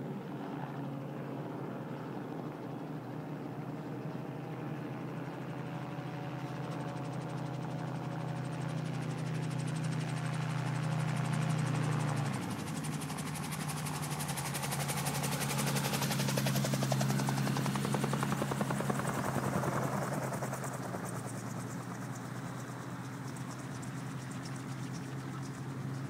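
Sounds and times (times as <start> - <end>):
low engine hum: 6.8 - 26.0.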